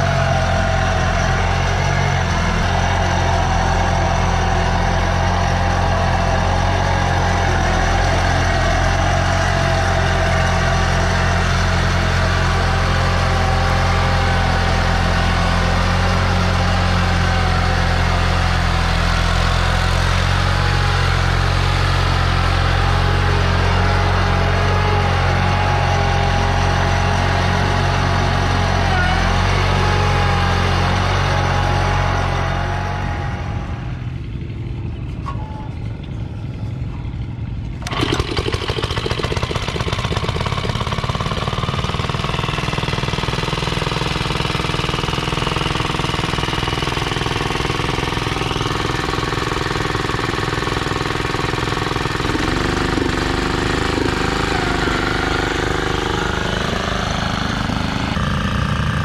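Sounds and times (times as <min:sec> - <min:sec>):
garden tractor engine under load: 0:00.0 - 0:59.0
small tractor engine firing rapidly: 0:37.8 - 0:59.0.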